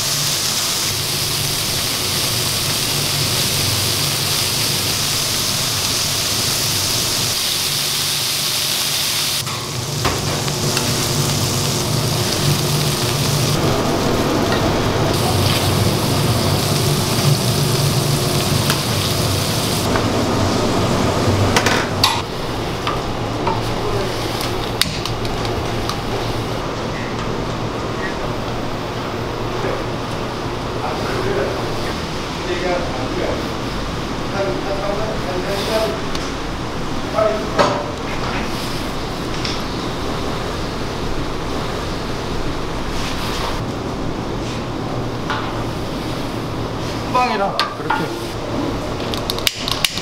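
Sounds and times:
patties sizzling on griddle: 0:00.0 - 0:13.6, 0:15.2 - 0:19.9.

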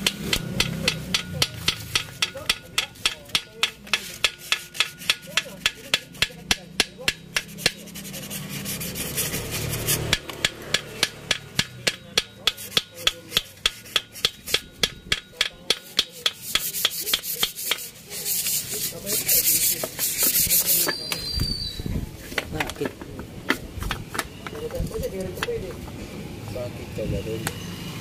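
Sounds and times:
hand tool clicking on metal: 0:00.0 - 0:07.8, 0:10.0 - 0:18.6
rasping metal rub: 0:00.0 - 0:21.1.

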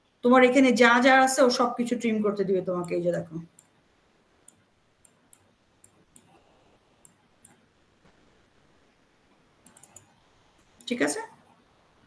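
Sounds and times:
computer mouse clicks: 0:04.4 - 0:06.4, 0:07.0 - 0:07.6, 0:09.6 - 0:10.9.

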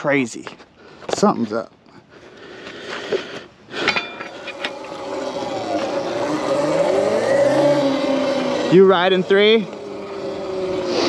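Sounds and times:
electric motor whining: 0:04.2 - 0:11.0.

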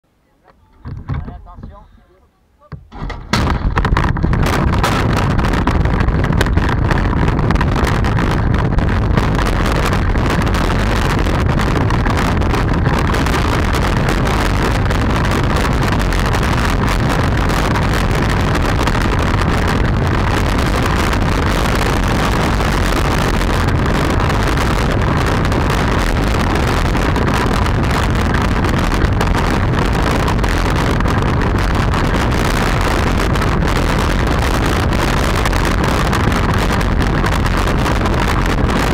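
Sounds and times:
wind rushing over microphone: 0:00.7 - 0:02.2, 0:02.8 - 0:38.9
cart knocks and rattles: 0:00.8 - 0:01.7, 0:02.7 - 0:19.6
wheels rolling on asphalt: 0:02.8 - 0:38.9.

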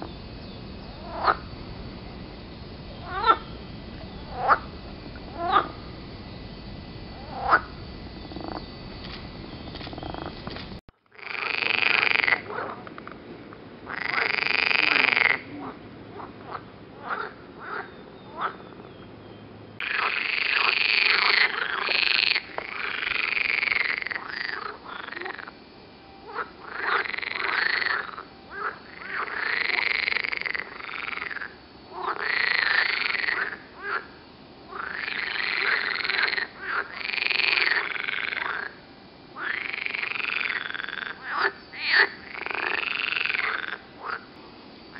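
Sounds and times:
frogs croaking in chorus: 0:00.0 - 0:13.2, 0:13.8 - 0:44.9.

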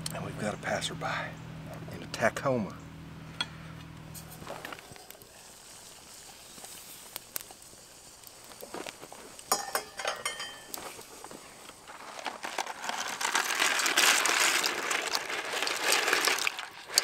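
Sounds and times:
campfire popping and crackling: 0:00.0 - 0:02.9, 0:03.7 - 0:17.0
low hum: 0:00.0 - 0:06.0
faint hiss: 0:04.1 - 0:10.0
rustling: 0:04.1 - 0:17.0.

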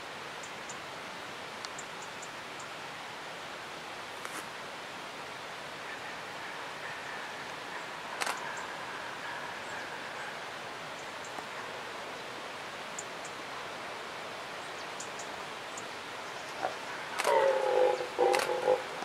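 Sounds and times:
background hiss: 0:00.0 - 0:19.0
faint ticks: 0:01.6 - 0:02.7, 0:08.2 - 0:08.6
camera shutter click: 0:08.2 - 0:08.4.

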